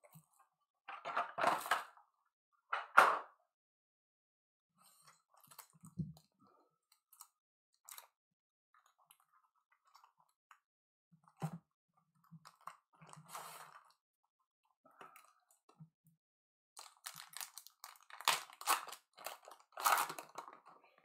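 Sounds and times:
card packs rustling and clicking: 16.8s - 20.7s.

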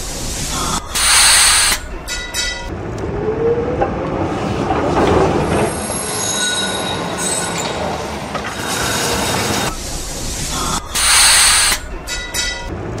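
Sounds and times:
tram rumbling on rails: 0.0s - 13.0s
wheel squeal: 5.1s - 9.8s.

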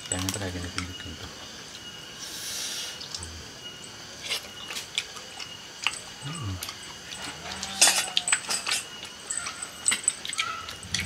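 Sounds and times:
mouth crunching and smacking: 4.2s - 11.0s.

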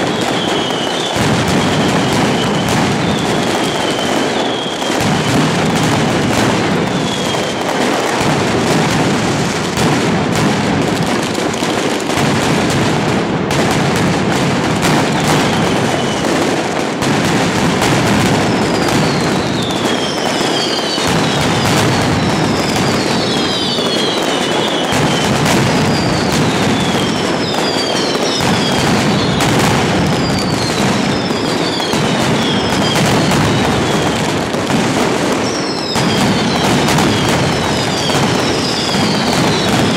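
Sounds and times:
firecrackers exploding: 0.0s - 39.9s
falling whistles: 0.1s - 1.2s, 2.0s - 5.0s, 6.9s - 7.6s, 18.7s - 25.3s, 30.2s - 34.2s, 35.4s - 39.9s.

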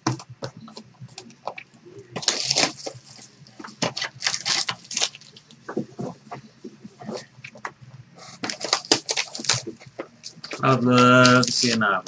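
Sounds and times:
foil and plastic crinkling: 2.2s - 5.4s, 8.4s - 11.9s.

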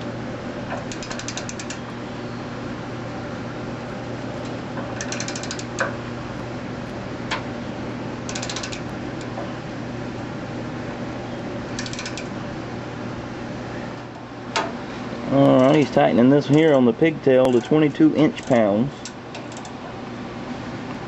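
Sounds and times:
ratchet wrench clicking: 0.8s - 1.8s, 5.0s - 5.9s, 8.3s - 8.9s, 11.8s - 12.3s, 17.5s - 17.8s, 18.4s - 19.8s.

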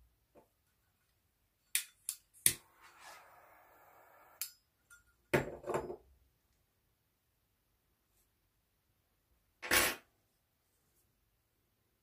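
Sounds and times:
tweezers clicking and scraping: 4.3s - 4.6s.

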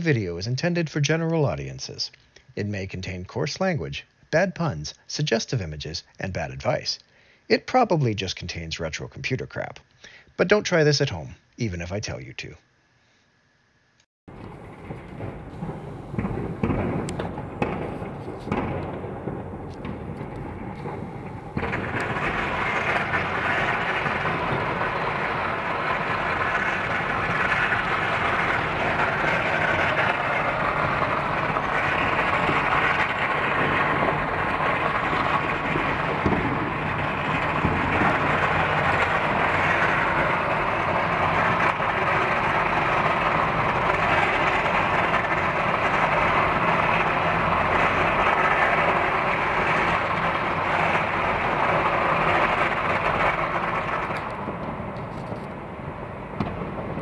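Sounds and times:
firecrackers crackling: 14.3s - 57.0s.

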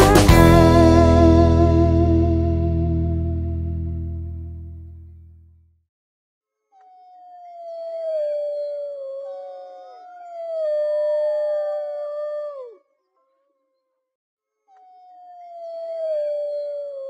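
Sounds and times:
dogs howling: 7.1s - 12.8s, 15.0s - 17.0s.

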